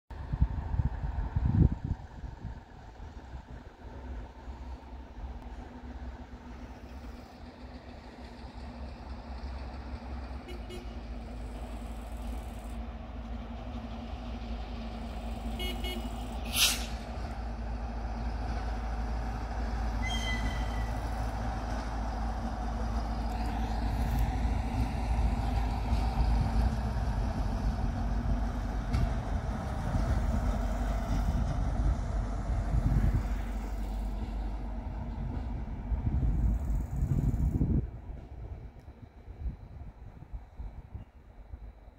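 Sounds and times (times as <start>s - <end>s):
train rumbling: 0.1s - 41.9s
high squeal: 20.0s - 21.2s.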